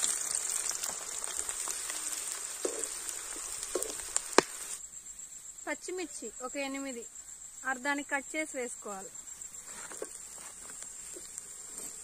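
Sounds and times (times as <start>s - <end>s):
onions sizzling in hot oil: 0.0s - 8.1s, 8.7s - 12.0s
sharp oil pop: 3.8s - 4.6s.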